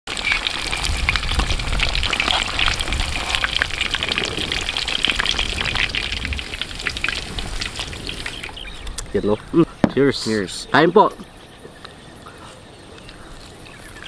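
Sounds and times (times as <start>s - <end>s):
food deep-frying in oil: 0.1s - 11.1s.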